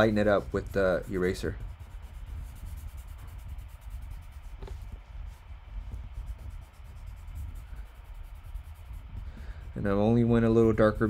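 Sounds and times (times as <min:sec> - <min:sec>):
charcoal rubbing on paper: 0:00.0 - 0:11.0
low rumble: 0:00.0 - 0:11.0.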